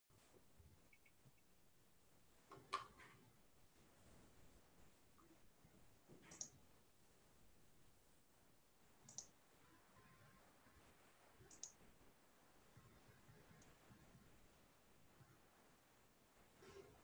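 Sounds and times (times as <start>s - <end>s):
faint sharp clicks: 9.0s - 9.4s, 11.4s - 11.8s.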